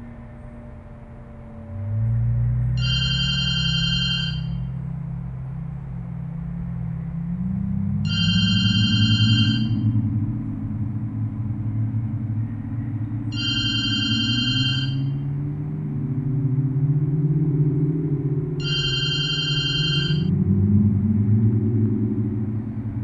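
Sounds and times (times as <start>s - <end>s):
low droning music: 0.0s - 23.0s
telephone ringing: 2.8s - 4.7s, 8.1s - 9.9s, 13.3s - 15.2s, 18.6s - 20.3s.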